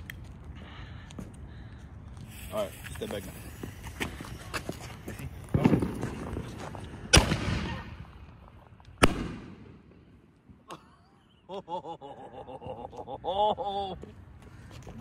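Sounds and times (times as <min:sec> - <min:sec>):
firework shell bursting: 0:02.2 - 0:04.2
firework launch bang with crackle: 0:05.4 - 0:08.3, 0:09.0 - 0:09.8.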